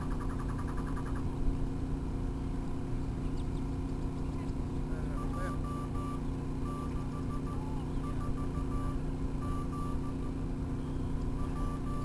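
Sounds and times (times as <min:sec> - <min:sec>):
steady low hum: 0:00.0 - 0:12.0
morse code beeps on radio: 0:05.0 - 0:12.0.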